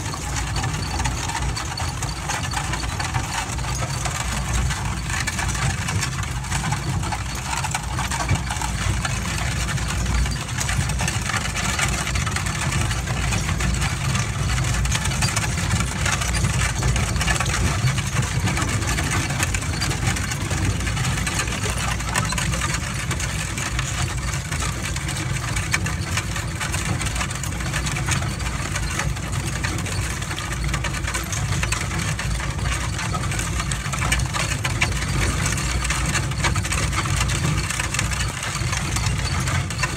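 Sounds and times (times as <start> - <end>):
wagon wheels crunching on gravel: 0.0 - 39.9.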